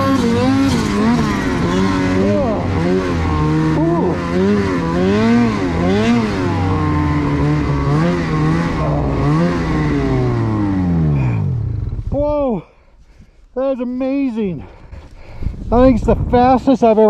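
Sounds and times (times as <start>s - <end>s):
snowmobile engine revving: 0.0s - 12.6s.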